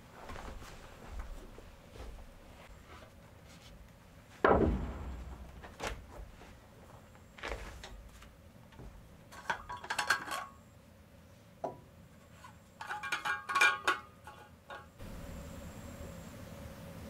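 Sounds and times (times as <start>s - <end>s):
metal objects clinking: 12.8s - 15.0s.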